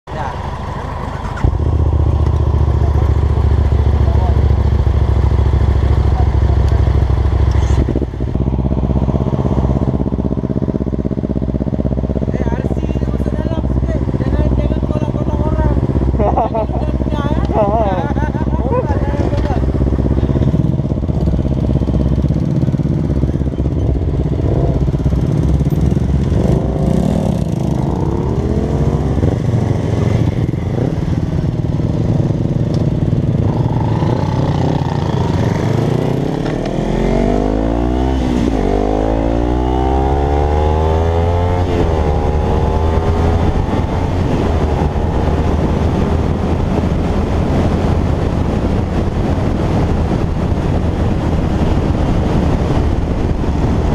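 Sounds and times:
motorcycles idling: 0.1 - 35.8
motorcycle accelerating through gears: 0.1 - 53.9.

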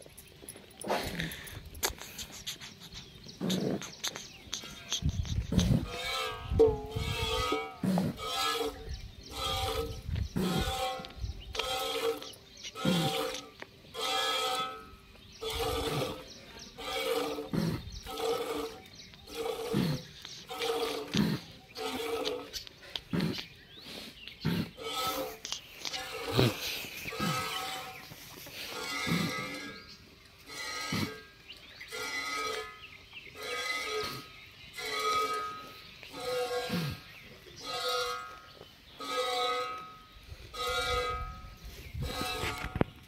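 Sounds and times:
sheep and goats bleating: 24.8 - 28.1, 28.7 - 31.2, 31.8 - 39.9, 40.5 - 42.8.

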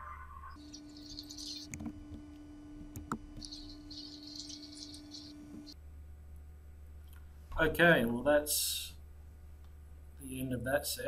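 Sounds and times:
high chirping squeaks: 0.5 - 1.9, 3.4 - 5.8.

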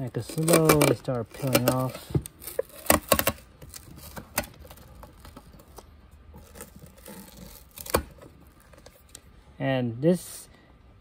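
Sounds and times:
keypad tearing and scraping: 0.0 - 9.0.

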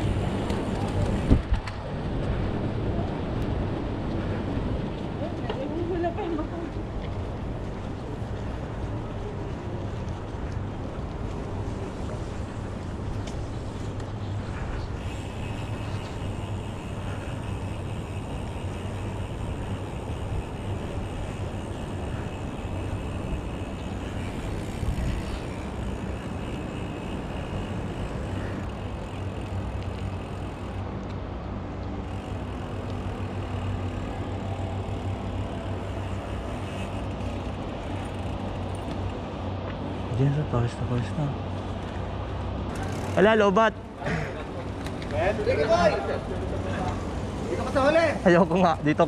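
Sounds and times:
wind buffeting microphone: 0.0 - 30.8.

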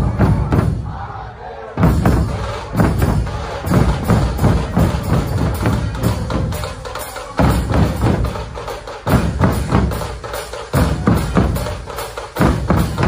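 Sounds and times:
barrel drums struck with sticks: 1.8 - 13.0.

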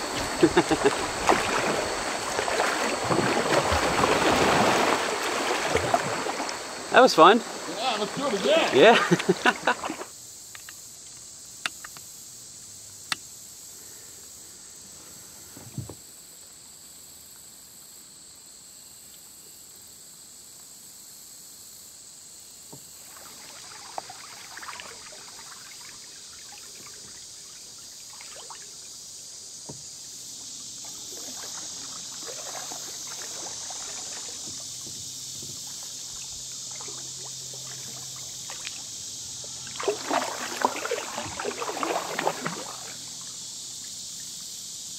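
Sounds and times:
paddle strokes: 0.0 - 10.1, 29.6 - 43.4
water sloshing against hull: 0.0 - 10.1, 22.7 - 44.3
steady high hiss: 0.0 - 44.9.

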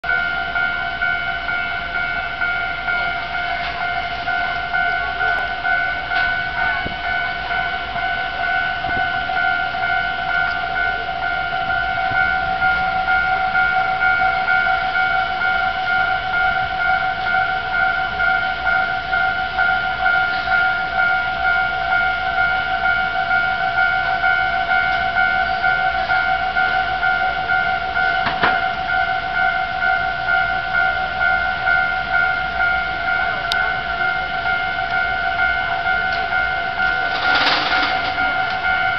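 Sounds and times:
level crossing alarm ringing: 0.0 - 38.9.

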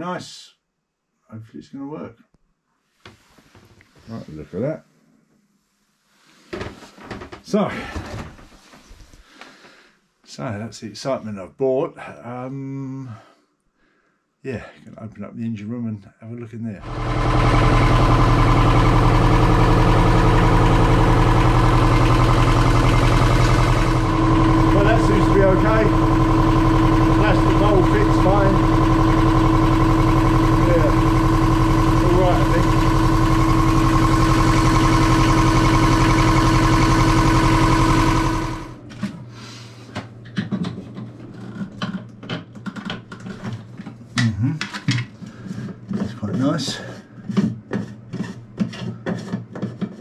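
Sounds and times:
diesel engine idling: 16.8 - 38.8.

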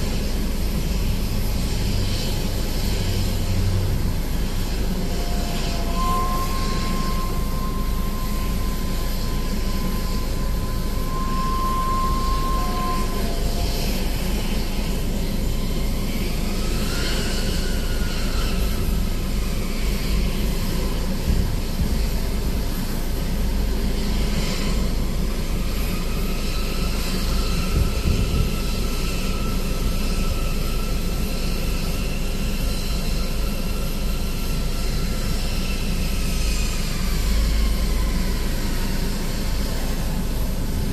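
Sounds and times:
jet aircraft whine: 0.0 - 40.9
steady high tone: 3.2 - 17.9.

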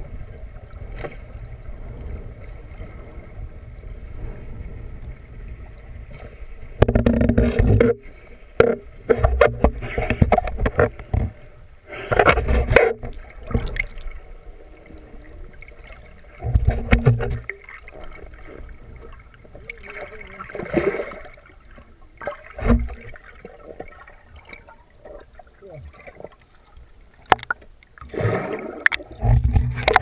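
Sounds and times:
water sloshing and bubbling: 0.0 - 30.0.

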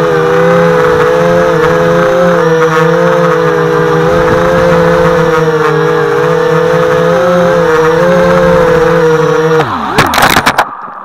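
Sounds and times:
drone motors and propellers whining: 0.0 - 11.0.

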